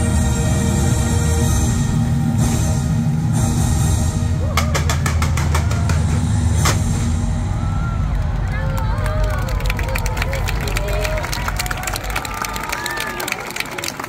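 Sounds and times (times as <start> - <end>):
crowd cheering: 4.3 - 14.0.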